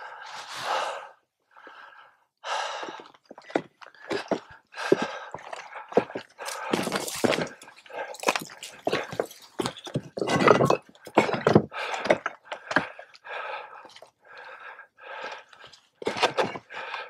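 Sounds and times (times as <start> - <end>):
hard tired breathing: 0.0 - 17.0
footsteps on loose rocks: 3.1 - 13.1.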